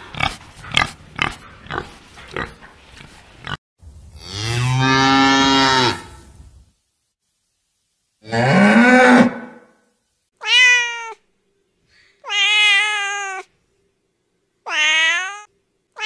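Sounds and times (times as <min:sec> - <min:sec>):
cat meowing: 0:10.4 - 0:11.2, 0:12.2 - 0:13.5, 0:14.7 - 0:15.5.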